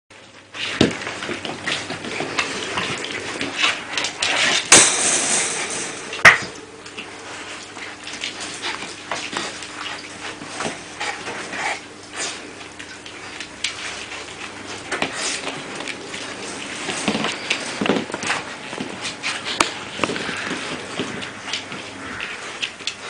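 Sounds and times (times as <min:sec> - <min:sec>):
metal wire pen rattling: 0:04.3 - 0:06.6.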